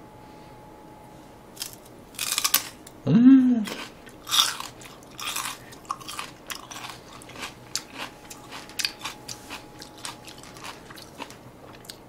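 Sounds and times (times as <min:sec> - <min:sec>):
chewing crunchy celery: 0:01.6 - 0:02.8, 0:03.6 - 0:12.0.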